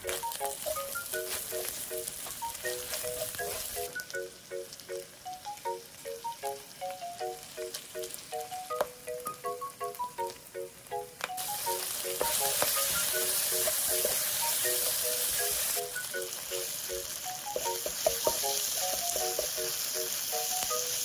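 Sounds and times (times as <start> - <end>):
meat sizzling in a wok: 0.0 - 10.6, 11.2 - 21.0
plucked-note background melody: 0.0 - 19.8
spatula clicking against pan: 17.6 - 19.7.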